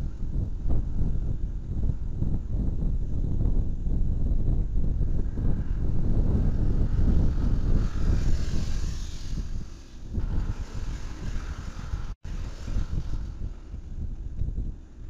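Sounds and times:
wind rumbling on microphone: 0:00.0 - 0:15.0.

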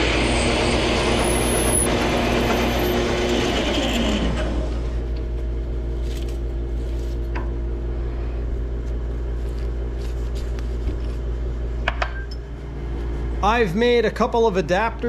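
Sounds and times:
steady low hum: 0:04.7 - 0:15.0.

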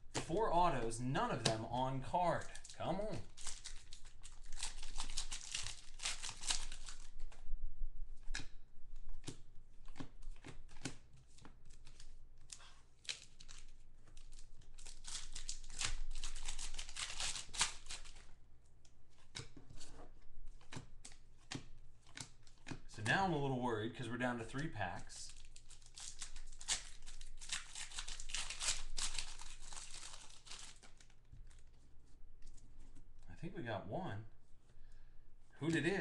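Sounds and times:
cards clicking and rustling: 0:00.1 - 0:07.4, 0:08.2 - 0:18.3, 0:19.1 - 0:23.1, 0:24.5 - 0:33.1, 0:35.6 - 0:36.0
foil wrappers tearing and crinkling: 0:00.2 - 0:07.3, 0:09.2 - 0:18.3, 0:25.2 - 0:31.6.

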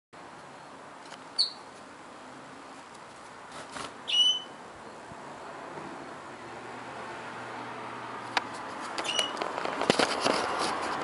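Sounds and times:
canary chirping: 0:01.4 - 0:01.7, 0:04.0 - 0:04.6, 0:09.0 - 0:09.4.

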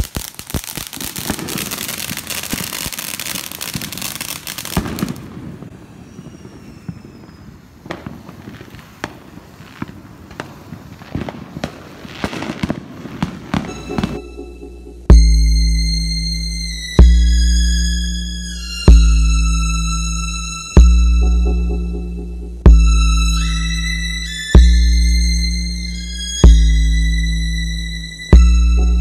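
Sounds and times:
fountain fireworks crackling hiss: 0:00.0 - 0:14.1
firecracker pops: 0:00.0 - 0:14.2.

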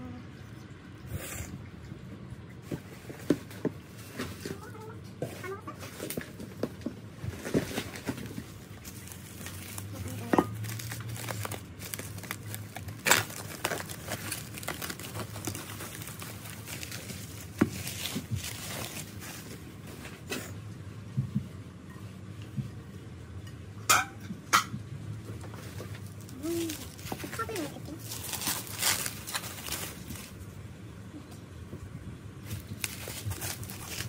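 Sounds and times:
bubble wrap crinkling: 0:07.2 - 0:20.3, 0:25.6 - 0:30.6, 0:32.4 - 0:34.0.

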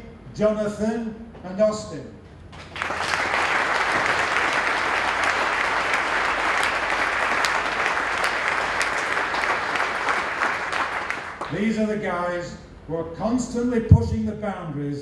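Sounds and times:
crowd applauding: 0:02.6 - 0:11.6.

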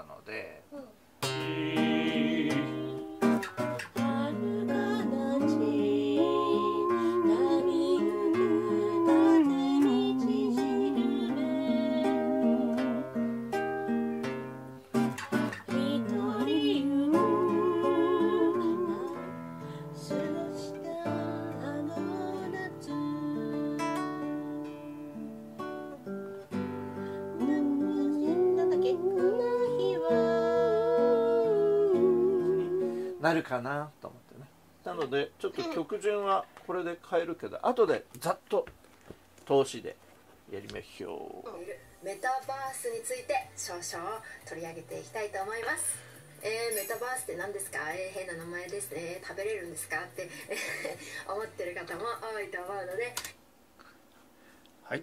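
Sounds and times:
person singing with vibrato: 0:01.2 - 0:13.2, 0:15.7 - 0:25.0, 0:27.2 - 0:33.3
strummed acoustic guitar: 0:01.2 - 0:33.3.

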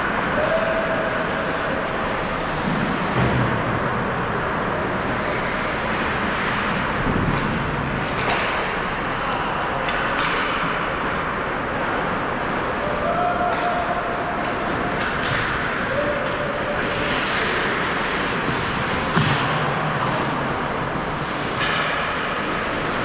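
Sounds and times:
ice rink ambience: 0:00.0 - 0:23.0
skates on ice: 0:00.0 - 0:23.0
stick or puck clacks: 0:08.1 - 0:08.8, 0:09.8 - 0:11.0, 0:13.5 - 0:20.3, 0:21.1 - 0:23.0.

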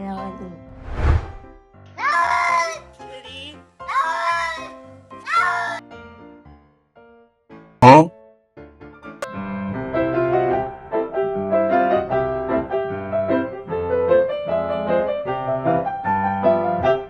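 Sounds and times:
piano music: 0:09.0 - 0:17.0.

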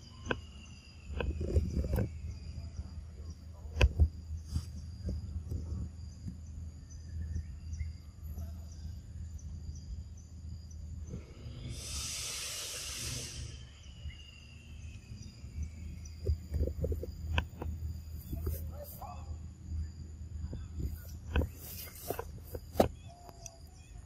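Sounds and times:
high-pitched insect tones: 0:00.0 - 0:24.0
high hiss: 0:11.1 - 0:16.1.

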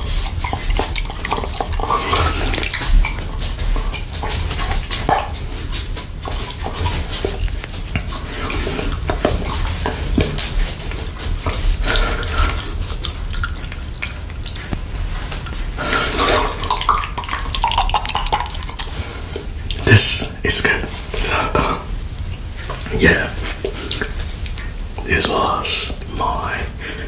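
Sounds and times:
mouth smacks and clicks: 0:00.0 - 0:27.0
wet mouth licking and slurping: 0:00.0 - 0:27.0.

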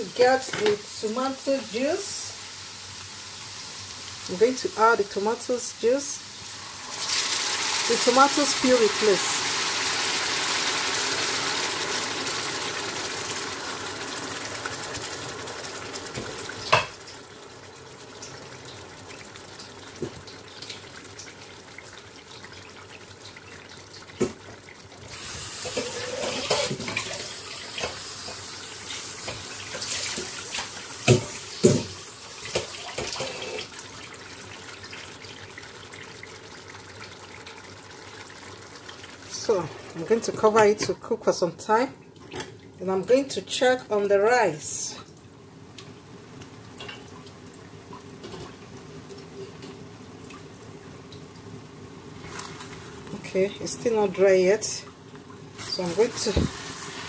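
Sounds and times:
puree sizzling in hot oil: 0:00.0 - 0:40.4, 0:51.2 - 0:57.0
sauce bubbling: 0:06.2 - 0:40.0.

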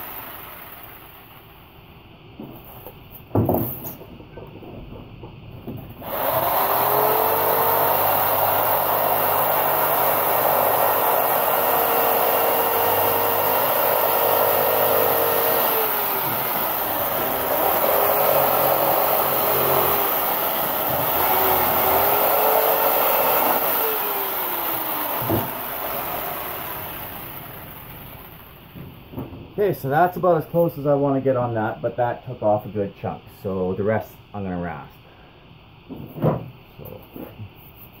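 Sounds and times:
electric jigsaw cutting foam: 0:00.0 - 0:01.5, 0:06.0 - 0:28.8.

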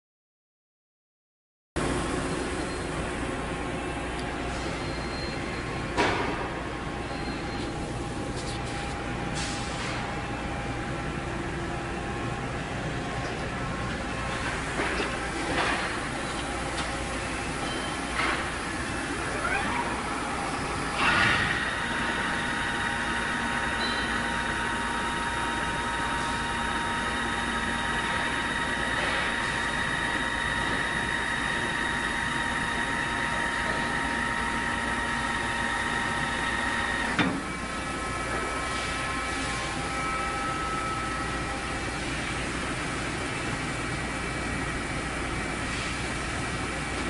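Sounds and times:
friction welding machine hum: 0:01.8 - 0:47.0
welding machine humming: 0:18.5 - 0:38.5
whining tones: 0:18.9 - 0:38.6.

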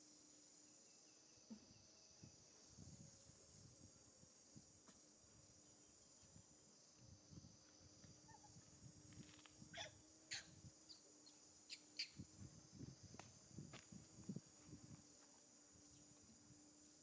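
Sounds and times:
insect drone: 0:00.0 - 0:17.0
macaque squeaks: 0:09.8 - 0:10.5.

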